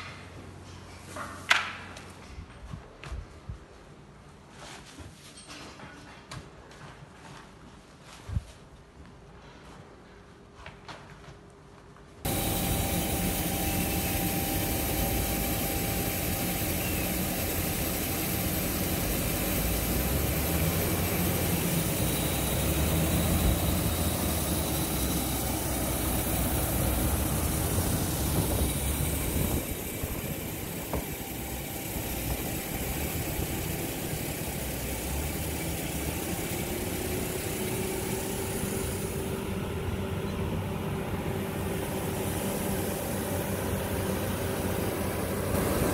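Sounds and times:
diesel engine running: 12.3 - 45.9.

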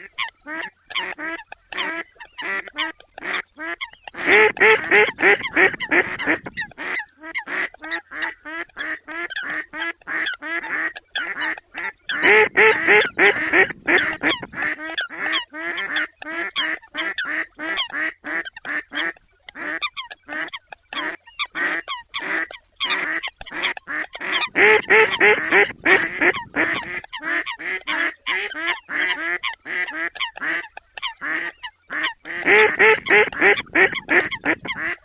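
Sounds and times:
water birds nasal calls: 0.0 - 35.0.

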